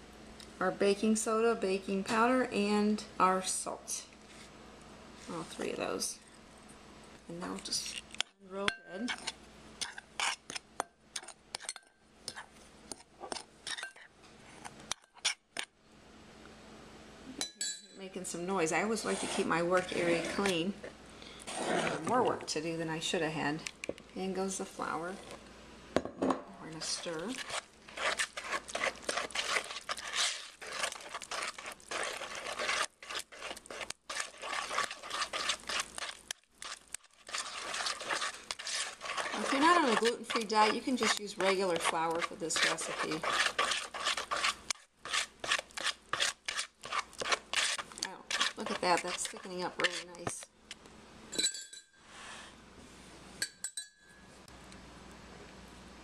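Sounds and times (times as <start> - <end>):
utensil stirring flour in bowl: 8.9 - 15.7, 18.8 - 20.8, 21.4 - 22.3, 26.6 - 50.5.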